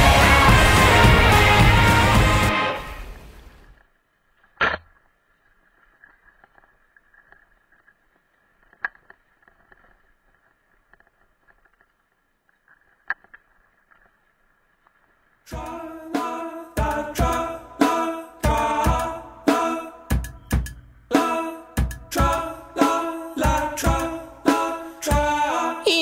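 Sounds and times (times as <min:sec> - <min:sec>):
steady high hiss: 0:00.0 - 0:03.9
bike rattles: 0:03.7 - 0:15.5.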